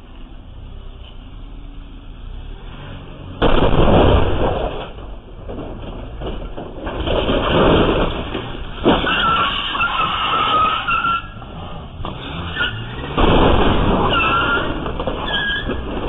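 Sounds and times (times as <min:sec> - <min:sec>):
vehicle crashing into masonry: 0:03.2 - 0:16.0.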